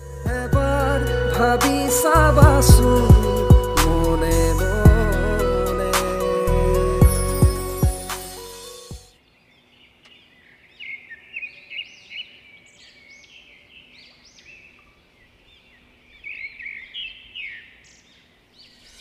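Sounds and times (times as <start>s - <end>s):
small birds chirping: 9.2s - 19.0s.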